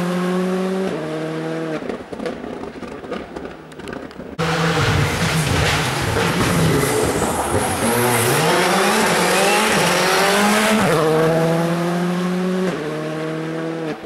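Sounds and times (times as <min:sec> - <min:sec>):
rally car engine accelerating: 0:04.4 - 0:14.0.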